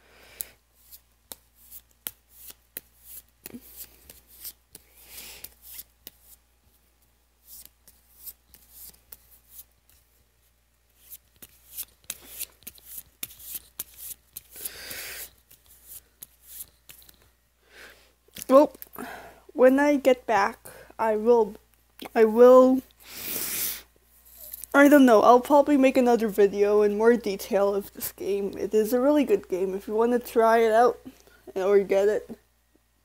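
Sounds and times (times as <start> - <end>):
cards being shuffled: 0.8 - 6.4, 7.4 - 10.1, 10.9 - 17.3.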